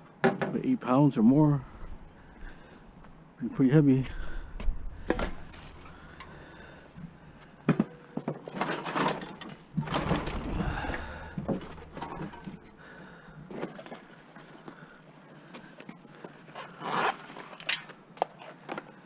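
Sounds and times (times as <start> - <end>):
scrap metal clattering and scraping: 4.1 - 14.2.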